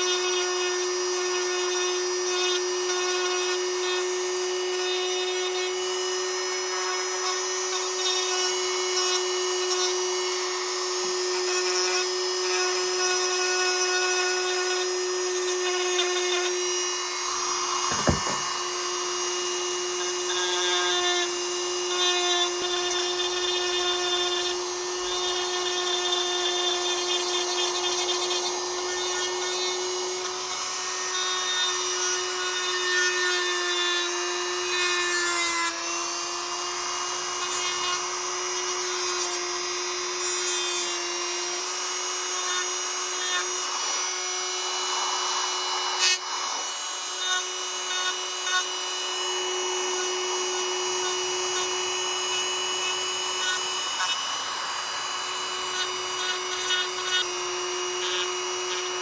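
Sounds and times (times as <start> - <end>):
rotary tool grinding metal: 0.0 - 59.0.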